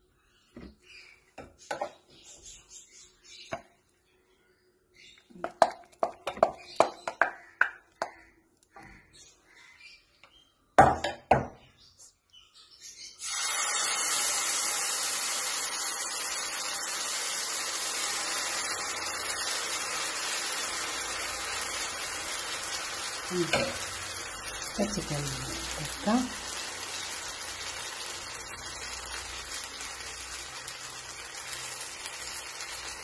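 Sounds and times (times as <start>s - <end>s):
batter sizzling on hot pan: 13.2s - 33.0s.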